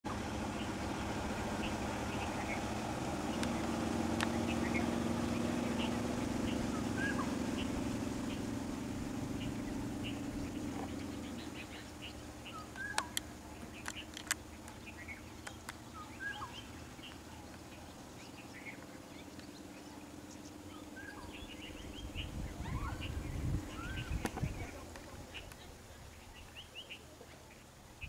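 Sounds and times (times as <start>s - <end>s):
vehicle engine hum: 0.0s - 28.0s
low rumbling: 0.1s - 26.8s
birds chirping and whistling: 0.1s - 27.6s
sharp clicks: 12.7s - 14.8s, 15.4s - 15.8s.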